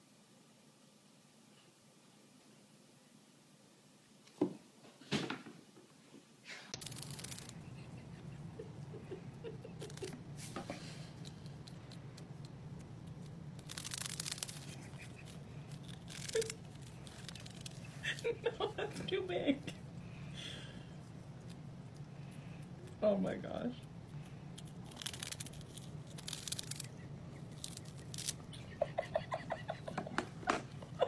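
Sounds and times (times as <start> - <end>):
steady low hum: 0.0 - 31.0
kitten crunching cheese puff: 6.7 - 18.3, 23.8 - 29.1.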